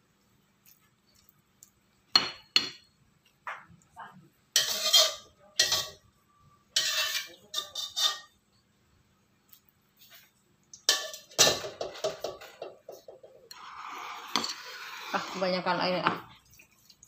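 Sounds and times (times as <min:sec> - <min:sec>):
dishes and utensils clattering: 0:04.6 - 0:06.0, 0:06.8 - 0:08.4, 0:10.8 - 0:15.4.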